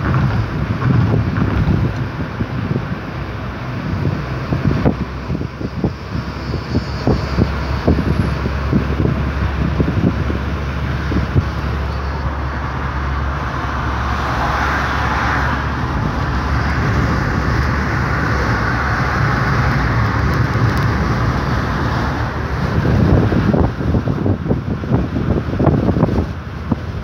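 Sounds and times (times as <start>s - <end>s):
car engine and tyre rumble: 0.0s - 27.0s.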